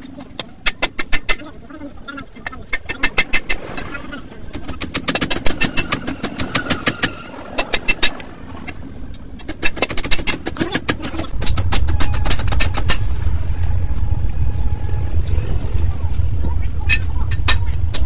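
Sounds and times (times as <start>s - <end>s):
sharp metallic clicks: 0.0s - 1.5s, 2.1s - 8.3s, 9.0s - 13.1s
low steady rumble: 0.0s - 18.0s.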